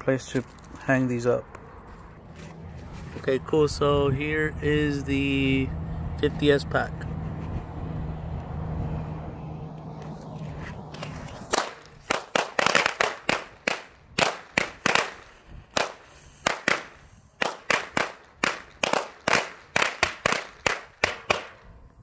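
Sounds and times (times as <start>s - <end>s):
firecrackers banging: 10.9s - 21.7s.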